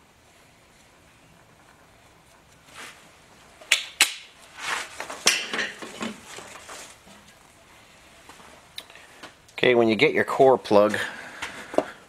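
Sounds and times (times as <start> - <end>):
rummaging handling noise: 4.6 - 7.4.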